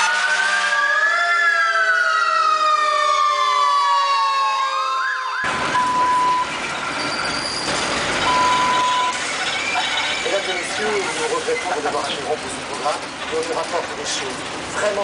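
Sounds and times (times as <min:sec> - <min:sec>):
falling siren-like electronic tone: 0:00.0 - 0:07.3
test-tone beep: 0:08.3 - 0:09.2.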